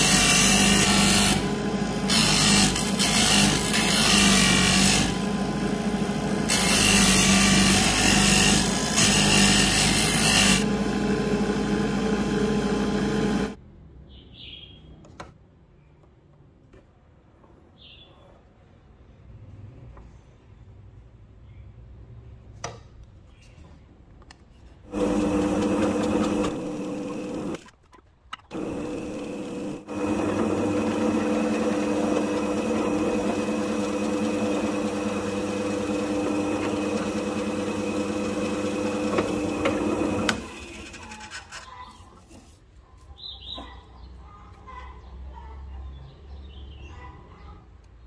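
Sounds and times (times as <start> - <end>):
drill press motor humming: 0.0 - 13.6, 24.9 - 27.6, 28.5 - 41.1.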